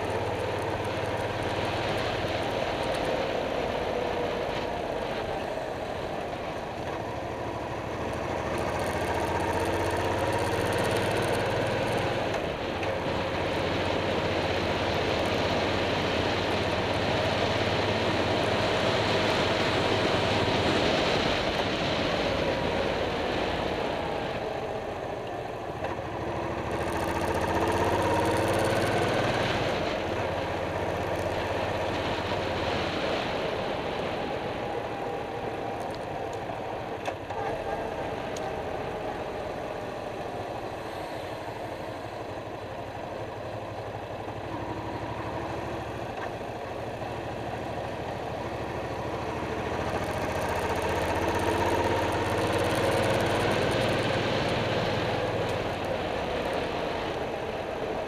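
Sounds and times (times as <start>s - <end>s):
motorcycle engine running: 0.0s - 58.0s
wind and road noise: 0.0s - 58.0s.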